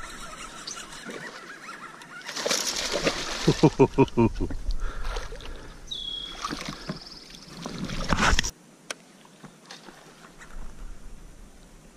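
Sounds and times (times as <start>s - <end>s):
water lapping: 0.0s - 8.5s
water sloshing and splashing: 2.2s - 3.8s, 6.3s - 8.5s.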